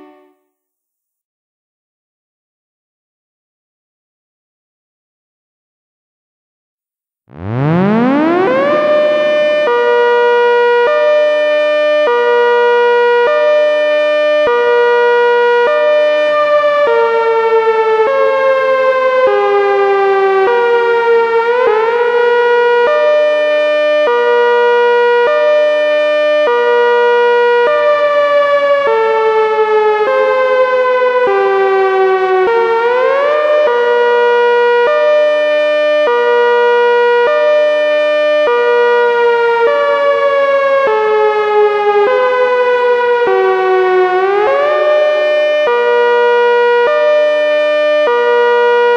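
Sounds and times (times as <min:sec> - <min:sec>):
two-tone siren alternating: 0:00.0 - 0:00.4, 0:07.3 - 0:48.9.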